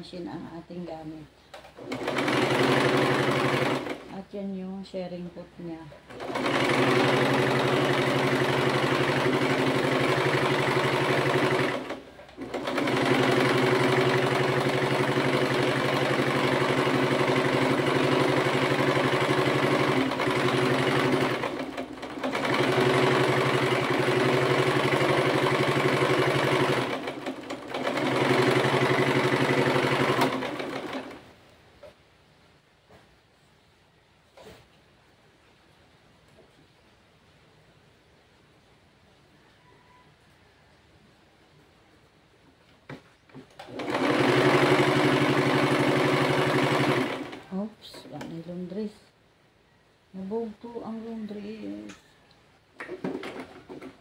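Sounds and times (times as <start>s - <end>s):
sewing machine running: 1.6s - 4.2s, 6.1s - 31.2s, 43.4s - 47.6s.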